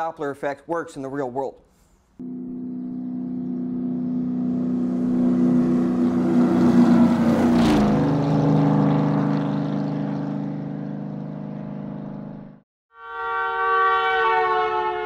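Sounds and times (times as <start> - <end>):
car engine driving past: 2.2 - 12.6.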